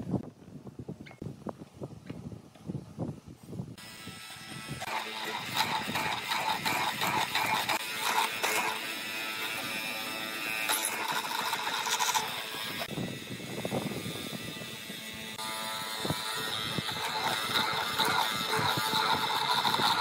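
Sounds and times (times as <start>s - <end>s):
mortiser cutting into wood: 3.8s - 20.0s.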